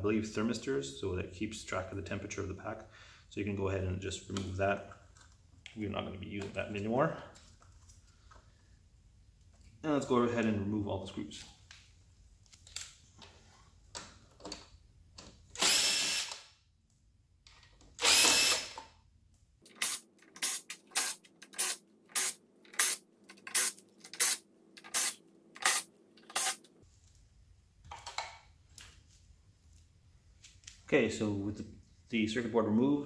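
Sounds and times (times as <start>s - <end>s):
cordless drill motor bursts: 15.6s - 16.5s, 18.0s - 18.8s, 19.8s - 23.0s, 23.6s - 26.6s.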